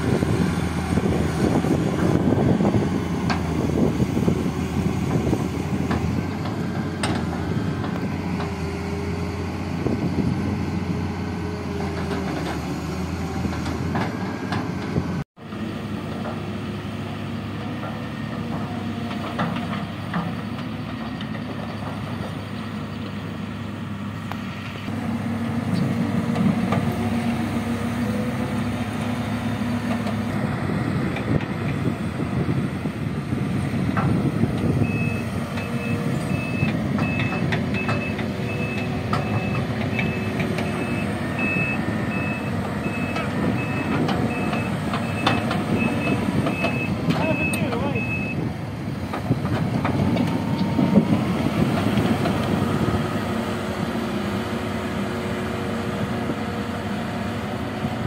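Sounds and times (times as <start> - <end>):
diesel engines running: 0.0 - 58.0
reversing alarm beeping: 34.8 - 48.4.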